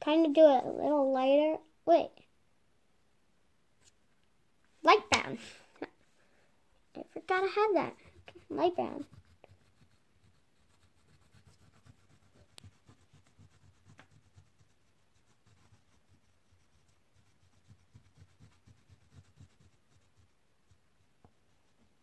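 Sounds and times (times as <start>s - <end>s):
oil pastel rubbing on paper: 7.3s - 21.9s.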